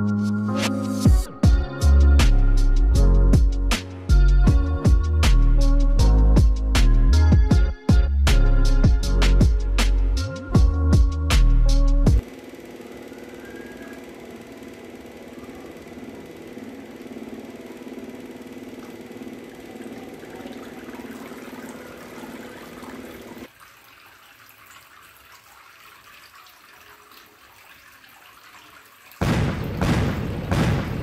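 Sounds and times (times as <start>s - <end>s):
mini pump humming: 1.0s - 30.9s
water trickling and splashing: 19.8s - 29.4s.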